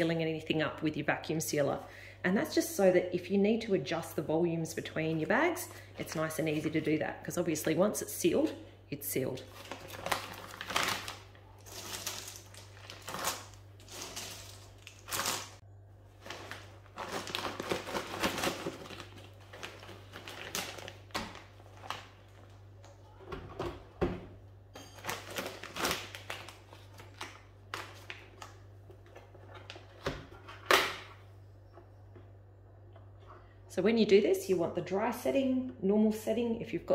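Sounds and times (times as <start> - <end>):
plastic bags crinkling: 9.4 - 22.8, 24.9 - 28.6
dry chips rattling: 11.6 - 15.6.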